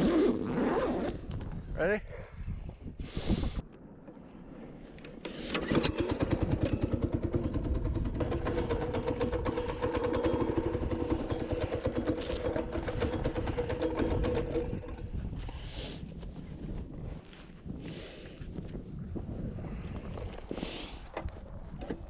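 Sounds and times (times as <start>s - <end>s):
small engine starting and puttering: 5.1s - 15.4s.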